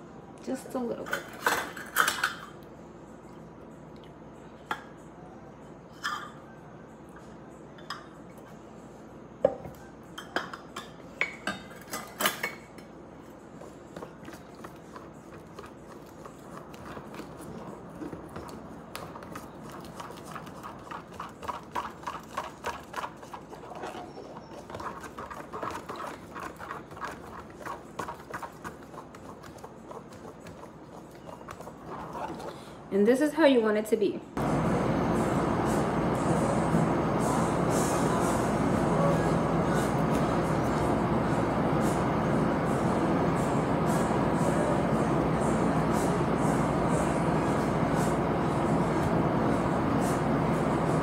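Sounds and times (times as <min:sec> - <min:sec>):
metal spoon stirring in plastic container: 0:13.7 - 0:32.5.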